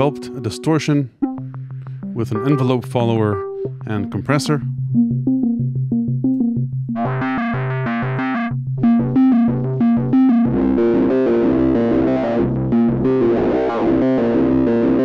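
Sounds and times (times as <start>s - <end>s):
distorted synthesizer riff: 6.9s - 15.0s.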